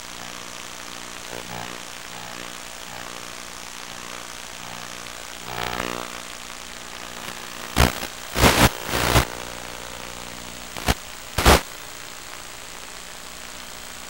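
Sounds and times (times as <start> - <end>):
bursts of hissing noise: 7.1 - 11.7.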